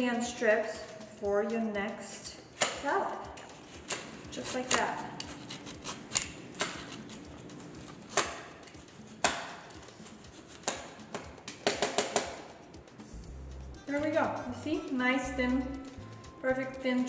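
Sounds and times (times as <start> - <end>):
peeler scraping carrot: 3.4 - 11.0.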